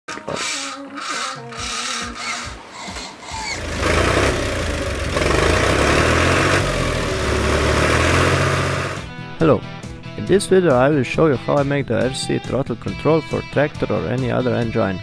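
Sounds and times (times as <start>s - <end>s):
tractor engine starting and running: 2.7s - 9.1s.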